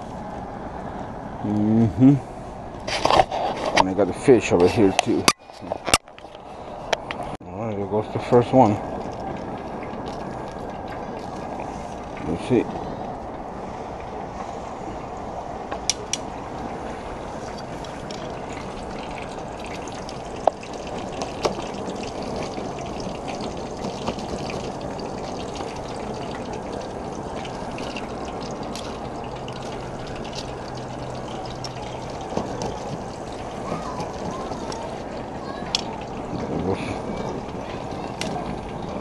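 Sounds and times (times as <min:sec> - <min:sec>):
fish deep-frying in oil: 0:08.2 - 0:13.0, 0:15.9 - 0:39.0.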